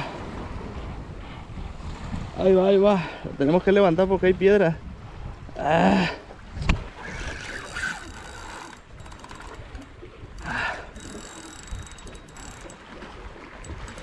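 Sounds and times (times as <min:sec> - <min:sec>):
fishing reel gears winding and clicking: 0:07.0 - 0:12.8, 0:13.6 - 0:14.0.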